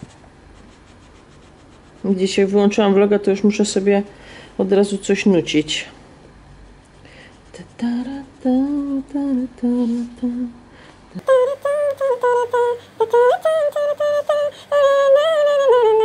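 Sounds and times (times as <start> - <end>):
woman humming a tune: 7.7 - 10.6, 11.2 - 16.0.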